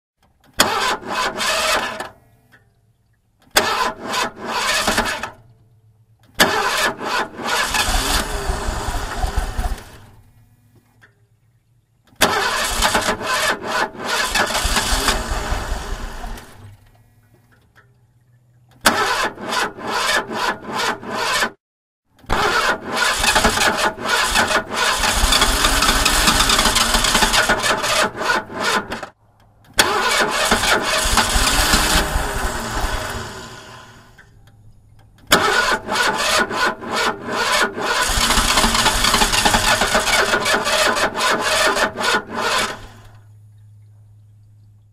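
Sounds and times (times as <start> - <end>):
engine cranking: 0.2 - 2.6, 3.4 - 5.5, 6.2 - 10.4, 12.1 - 17.8, 18.6 - 21.6, 22.2 - 43.6
car engine stalling: 0.5 - 2.1, 3.5 - 5.4, 6.3 - 10.3, 12.2 - 17.1, 18.8 - 21.6, 22.2 - 34.3, 35.2 - 43.3.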